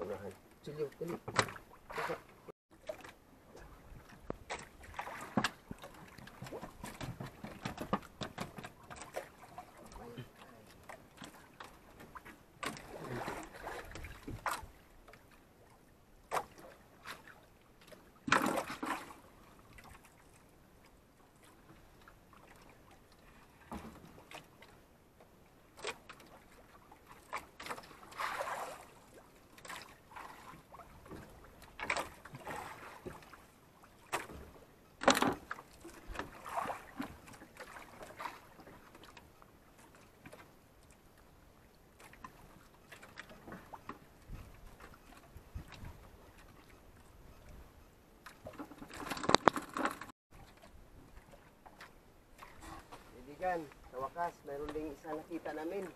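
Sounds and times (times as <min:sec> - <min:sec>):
water lapping against boat hull: 0:00.0 - 0:55.9
knocks and thumps on boat: 0:01.0 - 0:10.4, 0:11.2 - 0:14.8, 0:34.1 - 0:38.8, 0:48.3 - 0:50.1.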